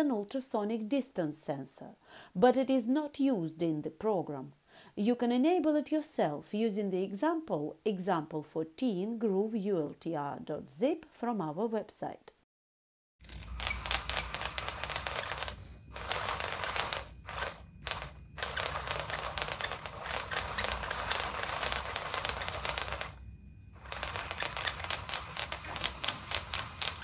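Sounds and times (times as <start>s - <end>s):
plastic legs clattering on floor: 13.2s - 23.2s, 23.8s - 27.0s
small motors whirring: 13.5s - 23.2s, 23.8s - 27.0s.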